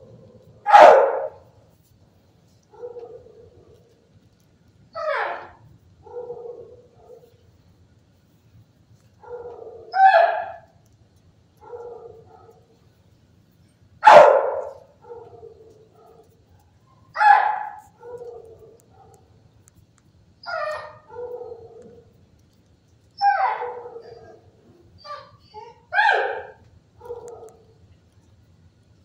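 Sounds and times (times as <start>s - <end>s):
fainter dog barks or whines: 0.1s - 1.5s, 5.0s - 7.3s, 9.2s - 10.7s, 14.0s - 16.3s, 16.9s - 19.2s, 20.4s - 22.1s, 23.2s - 27.7s
dog barking loudly: 0.6s - 1.5s, 5.0s - 7.2s, 9.2s - 10.7s, 14.0s - 16.3s, 17.1s - 19.2s, 23.2s - 24.5s, 25.1s - 27.6s.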